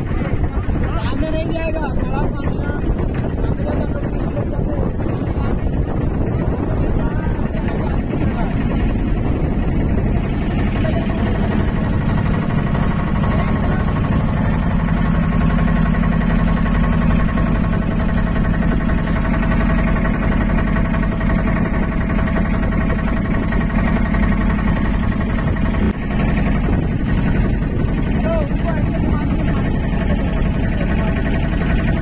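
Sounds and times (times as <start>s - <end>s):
motorboat engine droning: 0.0s - 32.0s
water and wind rushing: 0.0s - 32.0s.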